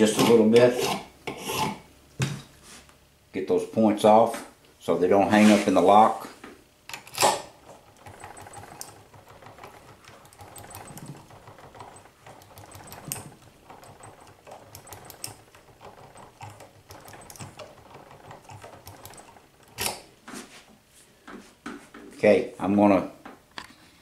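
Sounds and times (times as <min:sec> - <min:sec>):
rotary tool grinding metal key: 0:06.9 - 0:20.1.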